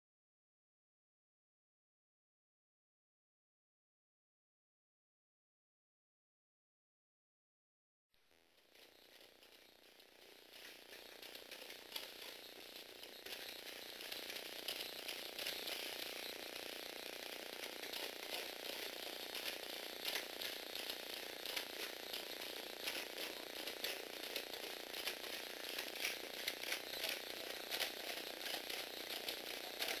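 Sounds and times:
toy robot motor whirring: 8.3s - 30.0s.

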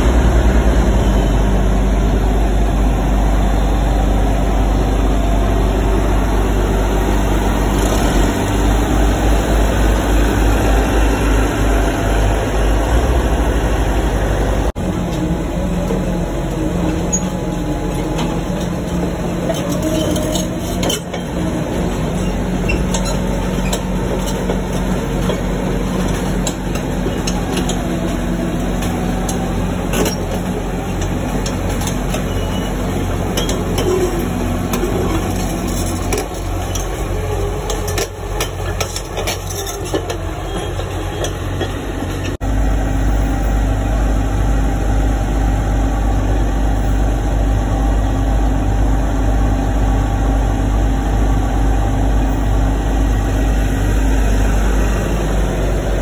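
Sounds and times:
diesel engine idling: 0.0s - 19.5s
bulldozer diesel engine running: 0.0s - 56.0s.

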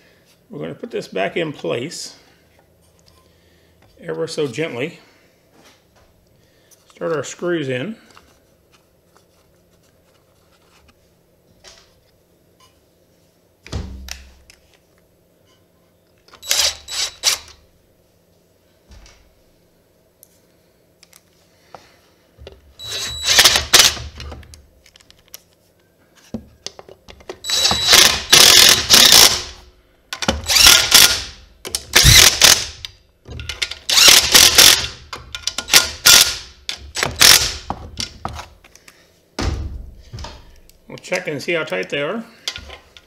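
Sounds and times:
impact wrench hammering: 27.4s - 29.6s, 30.2s - 32.8s, 33.4s - 38.3s.

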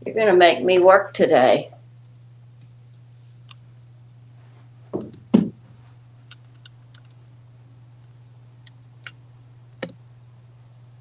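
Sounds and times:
steady low hum: 0.0s - 11.0s
sharp knocks: 4.9s - 5.6s.

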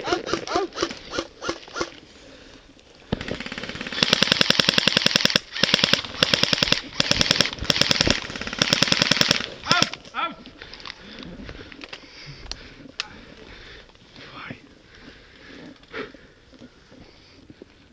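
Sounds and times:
airsoft rifle firing full auto: 3.1s - 10.0s.

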